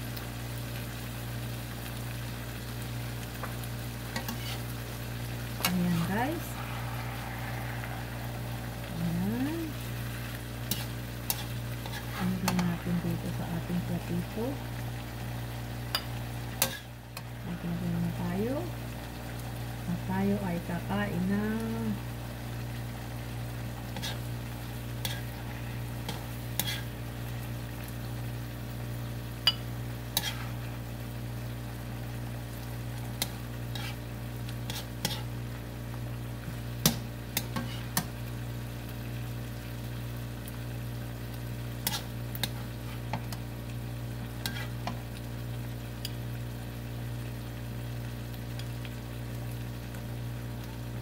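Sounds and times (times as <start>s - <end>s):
steady low hum: 3.0s - 39.2s
plastic spatula scraping a wok: 4.2s - 4.7s, 33.7s - 34.0s, 34.6s - 35.3s.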